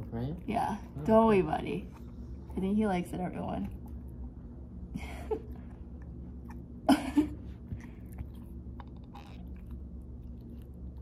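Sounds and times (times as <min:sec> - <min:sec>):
dog gnawing rubber chew toy: 0:07.8 - 0:11.0.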